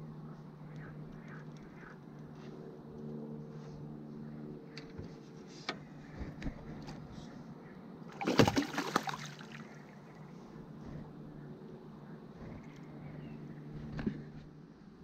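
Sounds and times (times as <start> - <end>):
low steady hum: 0.0 - 15.0
water splashing: 8.1 - 9.8.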